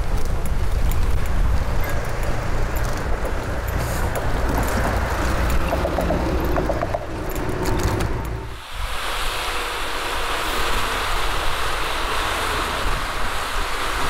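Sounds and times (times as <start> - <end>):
bus passing: 0.0 - 8.6
road traffic: 0.0 - 14.0
wind rumble on microphone: 0.0 - 14.0.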